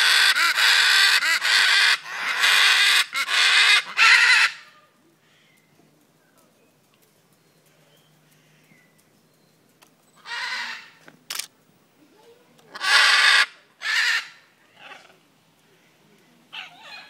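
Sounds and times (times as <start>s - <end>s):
parrots squawking: 0.0s - 4.8s, 10.2s - 11.0s, 12.7s - 15.2s, 16.5s - 17.0s
sharp click: 11.1s - 11.5s.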